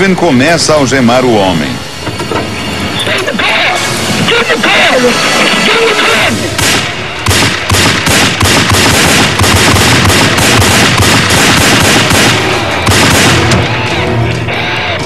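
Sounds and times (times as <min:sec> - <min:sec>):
rapid handgun fire: 0:06.5 - 0:13.8.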